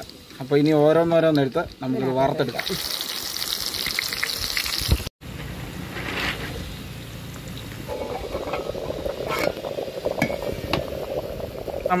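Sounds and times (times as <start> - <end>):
water bubbling in a pot: 7.3 - 12.0.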